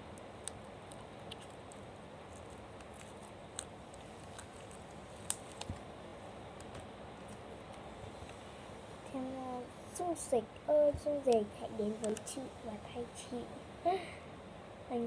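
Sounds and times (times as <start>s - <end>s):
faint hiss: 7.3s - 15.0s.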